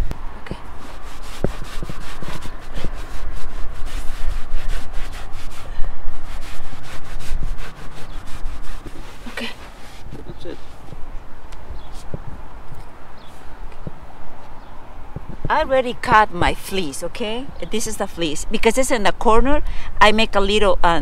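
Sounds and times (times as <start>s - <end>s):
rag scrubbing rubber roof: 0.6s - 11.1s.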